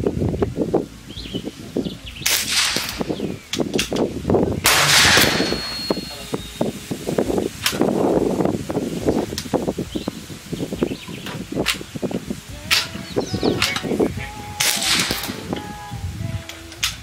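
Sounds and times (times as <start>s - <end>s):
air rifle firing blasts: 2.2s - 3.3s, 4.6s - 6.1s, 14.6s - 15.5s.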